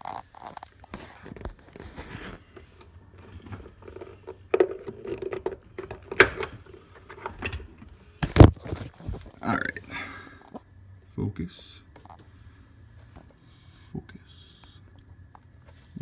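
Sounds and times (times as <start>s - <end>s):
hands scraping and rustling wiring: 0.0s - 9.8s.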